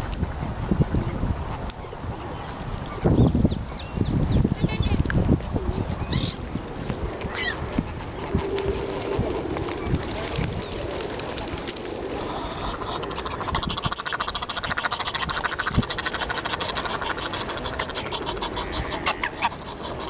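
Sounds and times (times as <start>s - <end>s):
waterfowl calling harsh notes: 12.2s - 20.0s.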